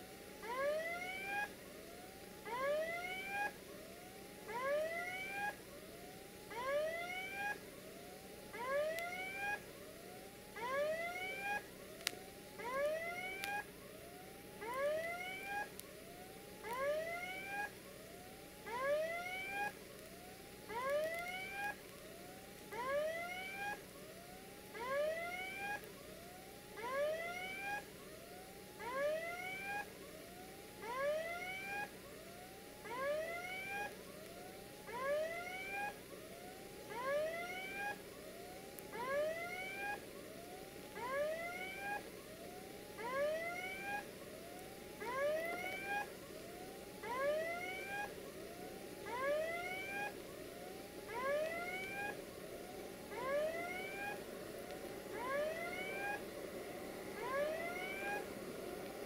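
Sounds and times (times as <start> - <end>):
level crossing warning whoops: 55.1 - 56.2, 57.2 - 58.3.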